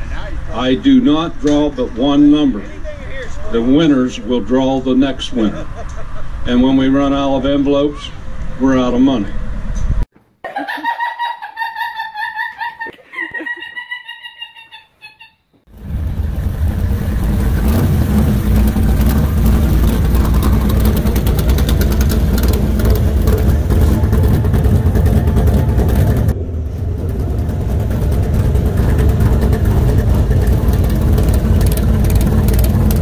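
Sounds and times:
vehicle engine running: 0:15.7 - 0:33.0.

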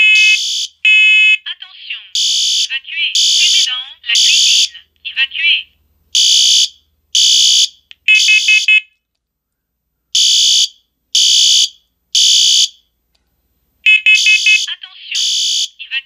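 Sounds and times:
fire alarm horn: 0:00.0 - 0:01.4, 0:06.2 - 0:08.9, 0:13.9 - 0:15.7
smoke alarm beeping: 0:13.9 - 0:15.7.

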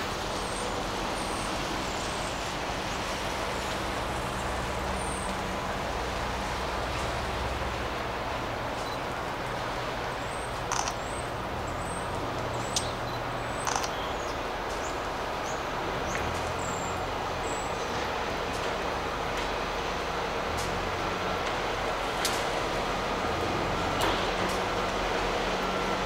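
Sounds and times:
distant diesel locomotive rumbling: 0:00.0 - 0:26.0
bird calls and chirps: 0:10.3 - 0:17.9.

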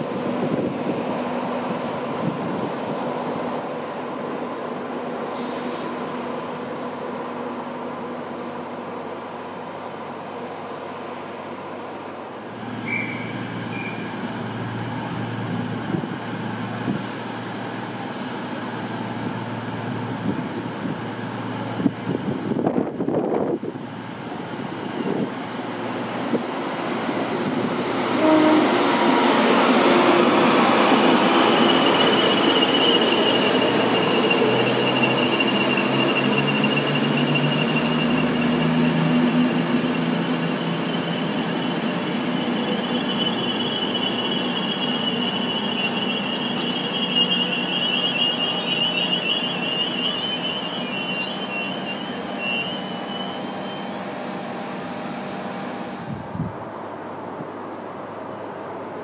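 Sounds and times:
high wheel squeal: 0:01.4 - 0:14.2, 0:28.2 - 0:54.4
train wheels rumbling on rails: 0:12.5 - 0:57.6.

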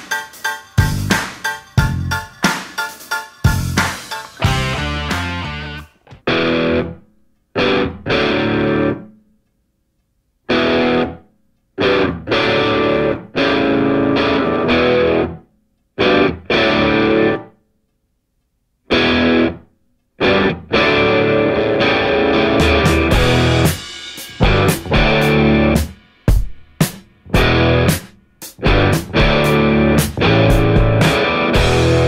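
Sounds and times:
distorted electric guitar chords: 0:00.0 - 0:07.0, 0:07.6 - 0:09.1, 0:10.5 - 0:11.2, 0:11.8 - 0:15.4, 0:16.0 - 0:17.5, 0:18.9 - 0:19.6, 0:20.2 - 0:26.4, 0:27.2 - 0:32.0.

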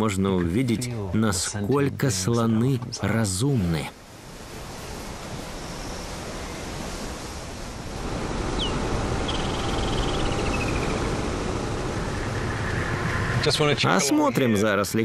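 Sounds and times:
rushing wind: 0:04.0 - 0:15.0
bird chirping and trilling: 0:08.5 - 0:11.2.

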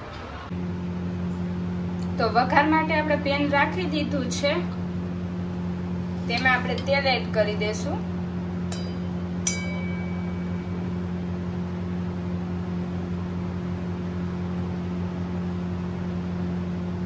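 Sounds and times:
low mechanical hum: 0:00.0 - 0:17.0
metallic clink on steel pan: 0:08.7 - 0:10.4.

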